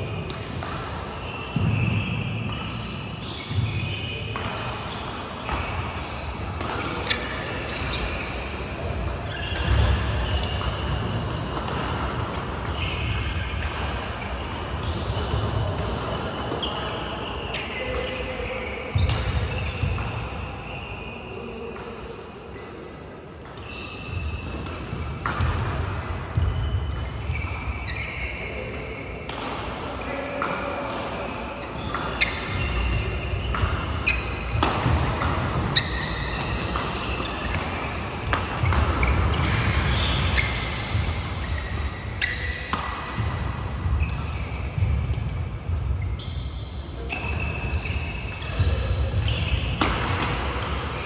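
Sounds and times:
shoe squeaks: 0.0 - 11.5, 12.1 - 13.7, 16.1 - 21.7, 23.6 - 25.6, 26.4 - 29.2, 30.0 - 51.0
racket striking shuttlecock: 0.3 - 1.8, 9.0 - 12.8, 31.9 - 44.2, 48.4 - 50.7.

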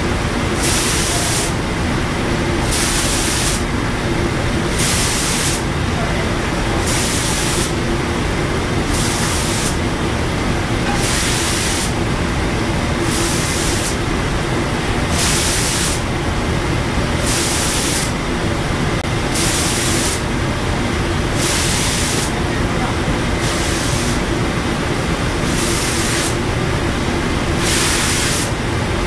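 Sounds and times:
steady machine noise: 0.0 - 29.0
spray guns hissing bursts: 0.6 - 1.6, 2.6 - 3.7, 4.7 - 5.7, 6.8 - 7.8, 8.9 - 9.8, 11.0 - 12.0, 13.0 - 14.1, 15.1 - 16.0, 17.2 - 18.2, 19.3 - 20.3, 21.4 - 22.4, 23.4 - 24.3, 25.4 - 26.4, 27.6 - 28.6.

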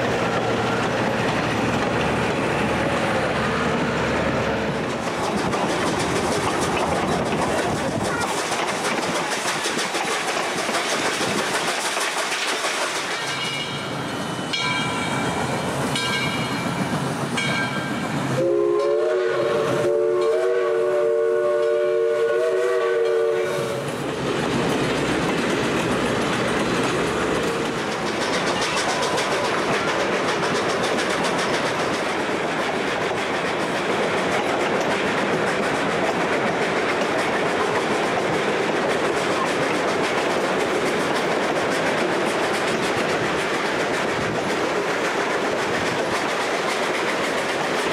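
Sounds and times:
model train rattling on track: 0.0 - 47.9
train whistle toots: 18.3 - 23.9.

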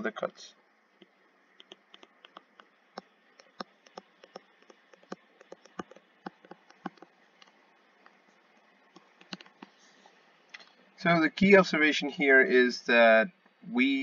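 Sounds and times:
low steady hiss: 0.0 - 14.0
stylus tapping on tablet screen: 1.0 - 8.2, 8.9 - 9.8.

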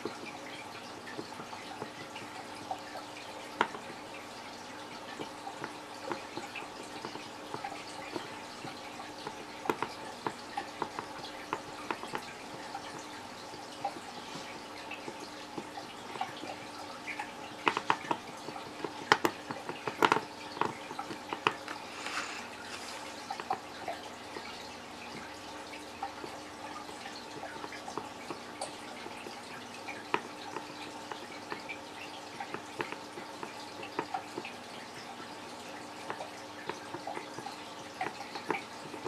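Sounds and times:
small crackles and ticks: 0.0 - 39.0
soldering iron scraping plastic: 21.0 - 23.2.

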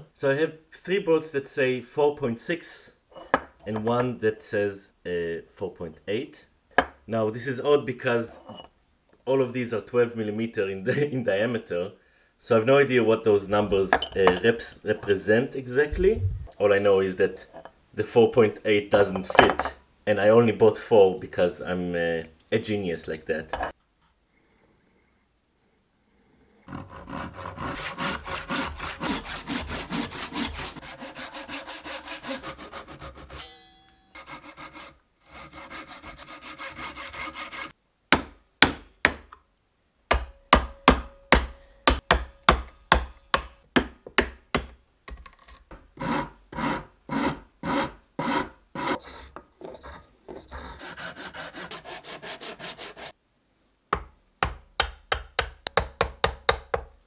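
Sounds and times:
handsaw cutting wood: 26.7 - 33.4, 34.2 - 37.8, 46.0 - 53.2.

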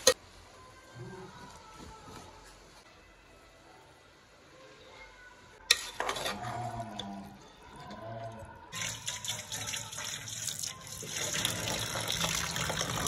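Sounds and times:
tap water running into bowl: 8.8 - 13.0.

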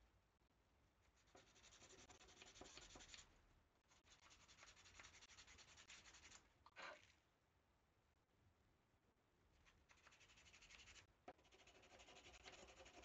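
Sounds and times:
scratching on thin wooden stick: 1.2 - 3.3, 3.9 - 6.4, 9.6 - 13.0.

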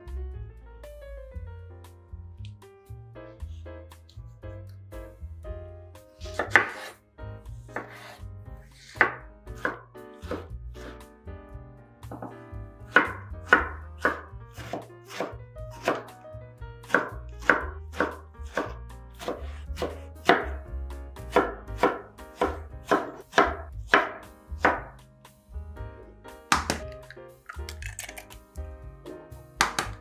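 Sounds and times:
knife chopping on wooden board: 6.2 - 7.0, 7.7 - 8.2, 8.8 - 11.0, 12.1 - 16.2, 16.8 - 20.6, 21.2 - 24.9, 26.5 - 27.6, 29.6 - 30.0.

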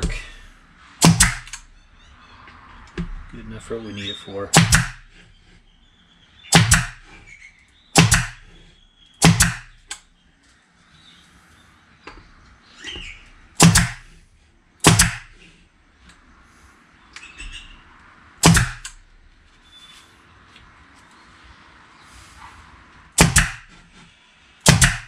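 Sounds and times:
nail gun firing: 1.0 - 1.6, 4.5 - 5.1, 6.5 - 7.1, 8.0 - 8.5, 9.2 - 10.0, 13.6 - 14.1, 14.8 - 15.4, 18.4 - 19.0, 23.2 - 23.7, 24.6 - 25.0.

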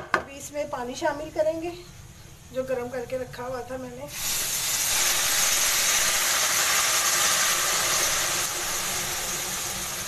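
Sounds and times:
water sizzling in hot oil: 4.1 - 10.0.

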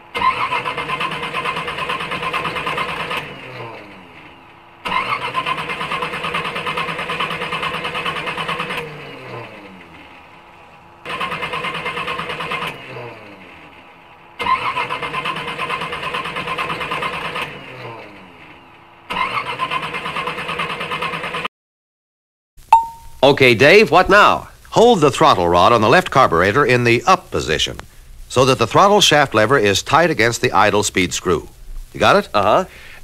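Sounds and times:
car engine revving: 0.1 - 20.4.

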